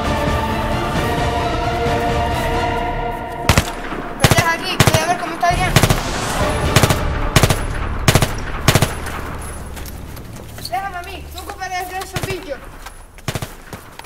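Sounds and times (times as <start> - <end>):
automatic rifle fire bursts: 3.5 - 5.2, 6.8 - 9.4, 13.2 - 14.0.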